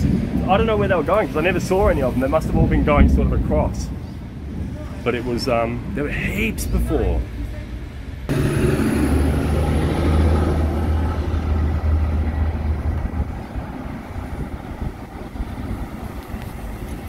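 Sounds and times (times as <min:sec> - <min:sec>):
truck diesel engine passing: 0:08.2 - 0:17.0.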